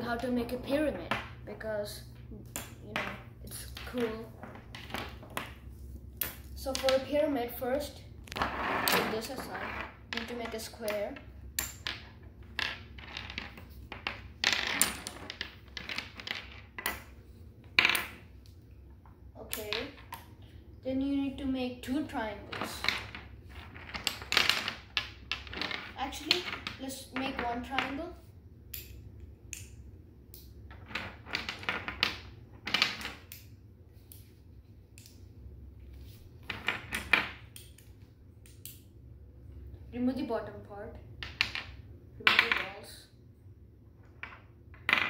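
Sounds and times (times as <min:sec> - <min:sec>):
pieces clattering on wooden table: 0:02.6 - 0:05.6, 0:11.6 - 0:18.2, 0:22.5 - 0:28.0, 0:30.7 - 0:33.3, 0:36.4 - 0:37.5, 0:41.2 - 0:42.8, 0:44.0 - 0:45.0.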